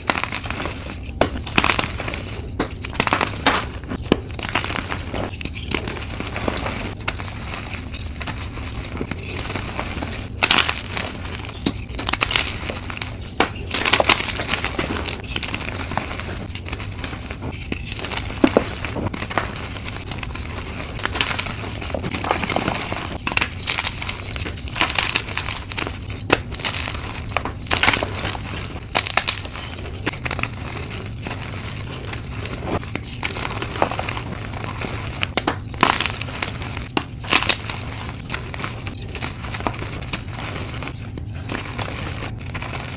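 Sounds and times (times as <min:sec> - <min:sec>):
chalk crunching and crackling: 0:00.0 - 0:42.9.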